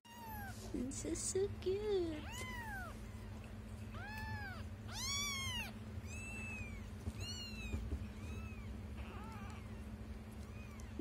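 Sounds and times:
kitten meowing: 0:02.2 - 0:09.9.

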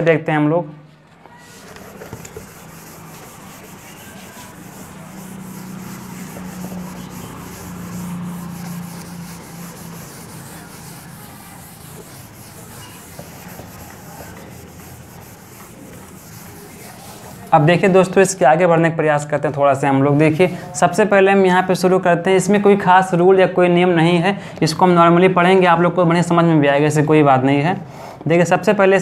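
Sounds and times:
whiteboard being wiped: 0:01.3 - 0:18.2.

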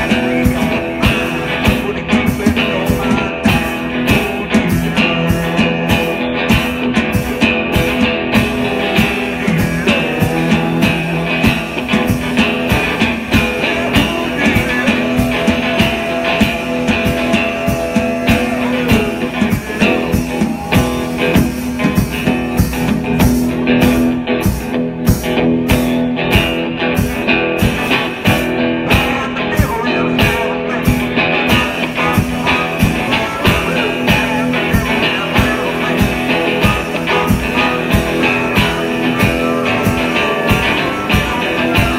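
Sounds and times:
drum kit beating: 0:00.0 - 0:41.9
amplified harmonica wailing: 0:07.8 - 0:22.6.

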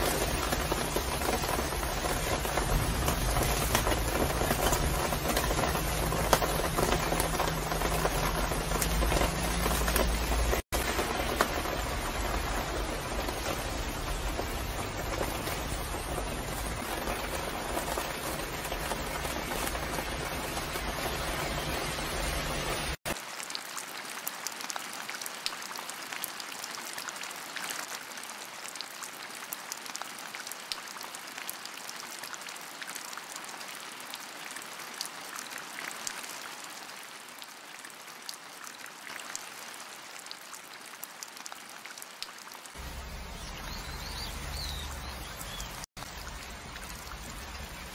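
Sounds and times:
rain on a cover: 0:00.0 - 0:47.9
bird chirping: 0:42.8 - 0:45.9.

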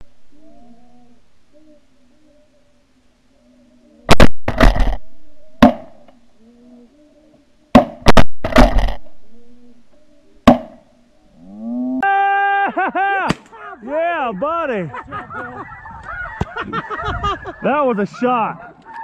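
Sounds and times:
shotgun blasts: 0:04.1 - 0:05.0, 0:07.8 - 0:09.0
whoop-like call: 0:12.0 - 0:13.3
geese calling: 0:13.5 - 0:19.0.

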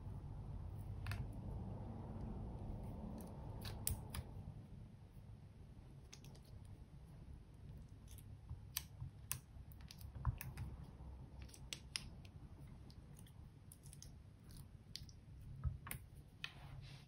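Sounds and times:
plastic spatula clicking and tapping: 0:08.1 - 0:10.8, 0:11.4 - 0:13.0.

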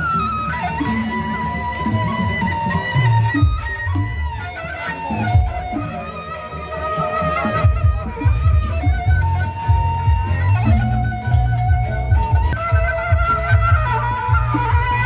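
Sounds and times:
ornamented melody: 0:00.0 - 0:15.0
heavy pulsing drumbeats: 0:07.2 - 0:15.0.

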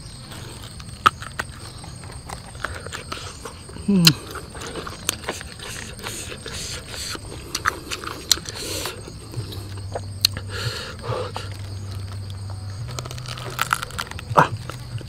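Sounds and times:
low steady hum: 0:00.0 - 0:15.0
fingers scraping fruit rind: 0:00.3 - 0:15.0
mouth clicks and lip smacks: 0:00.7 - 0:10.7.

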